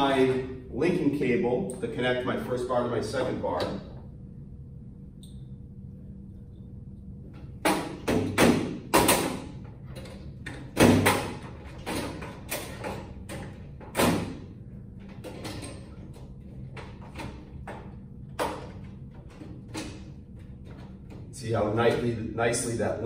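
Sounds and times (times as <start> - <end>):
knocks on sheet-metal fixture: 7.6 - 9.5.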